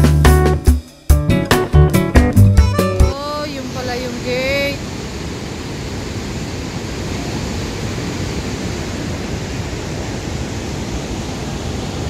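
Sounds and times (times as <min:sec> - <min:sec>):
water rushing from dam spillway: 0:03.2 - 0:12.0.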